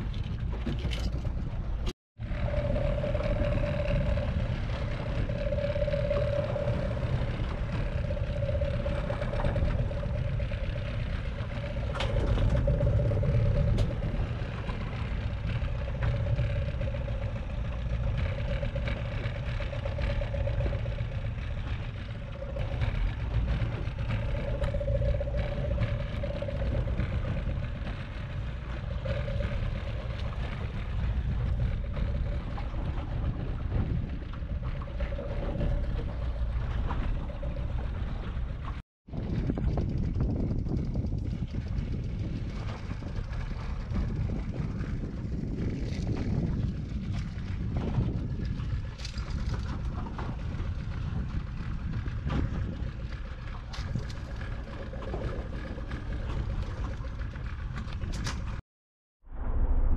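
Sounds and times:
outboard motor running: 0.0s - 58.6s
wind and sea rumble: 0.0s - 58.6s, 59.2s - 59.9s.

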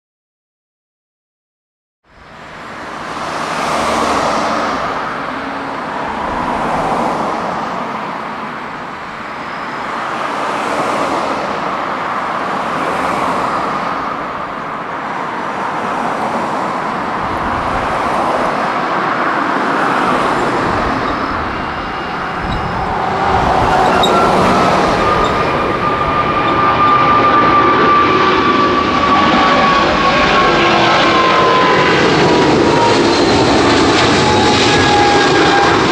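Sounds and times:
jet engines roaring: 2.2s - 35.9s
whining tone falling in pitch: 16.9s - 35.9s.

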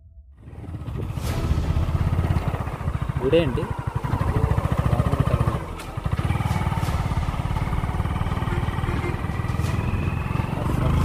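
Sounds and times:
motorcycle engine running: 0.4s - 11.0s.

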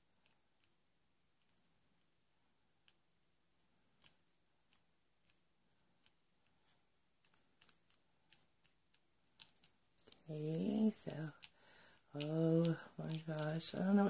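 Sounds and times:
plastic beads clicking in tray: 4.0s - 5.4s, 7.2s - 14.0s.

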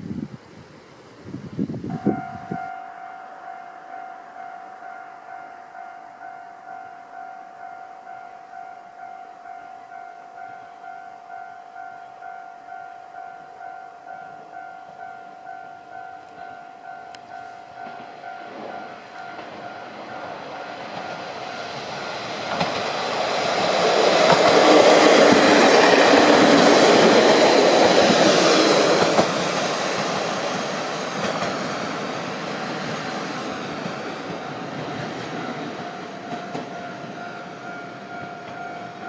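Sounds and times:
diesel train passing: 0.1s - 39.0s
level crossing bell ringing: 2.0s - 20.4s
wheels clicking over rail joints: 16.2s - 33.0s, 33.6s - 39.0s.

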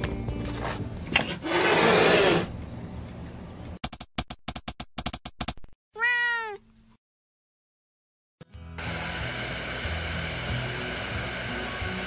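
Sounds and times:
cat meowing: 6.0s - 6.6s.

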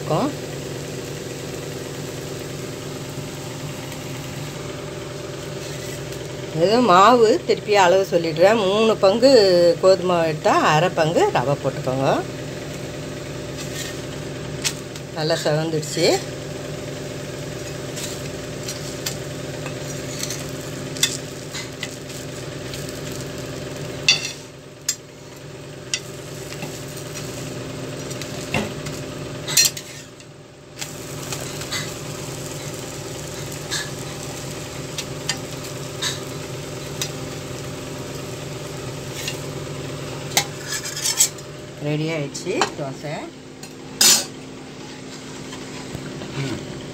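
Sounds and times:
dosa sizzling in oil: 0.0s - 41.8s
steady low hum: 0.0s - 46.9s
steel spatula scraping a pan: 5.6s - 6.1s, 13.6s - 14.0s, 17.6s - 21.9s, 29.5s - 30.2s, 40.4s - 41.4s.

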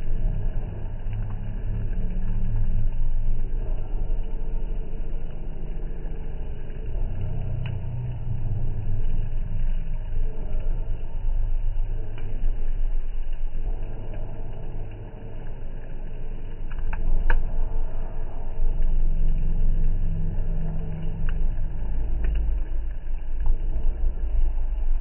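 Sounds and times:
wood fire rumbling: 0.0s - 25.0s
burning sticks snapping: 16.6s - 17.6s.

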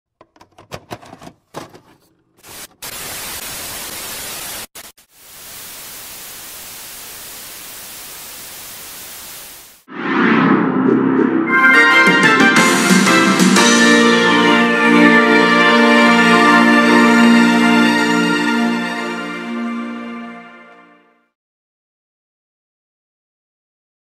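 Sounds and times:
static crackles and clicks: 2.4s - 9.9s
tv static hiss: 2.4s - 9.9s.

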